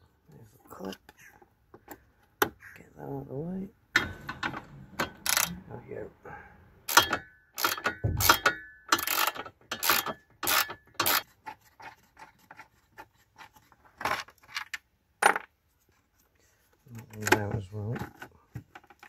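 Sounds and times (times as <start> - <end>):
hand ratchet clicking: 6.9 - 11.2.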